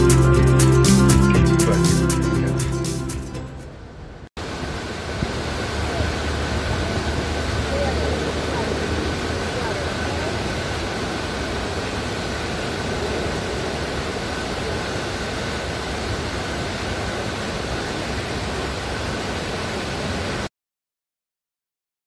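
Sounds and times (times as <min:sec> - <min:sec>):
steady outdoor rushing noise: 0:03.6 - 0:20.5.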